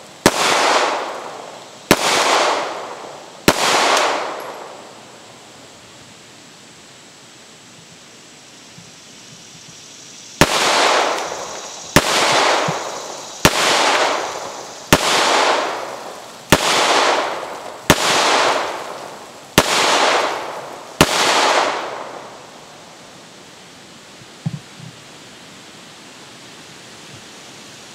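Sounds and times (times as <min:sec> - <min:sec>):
pistol shots with echo: 0:00.2 - 0:05.0, 0:10.4 - 0:22.4.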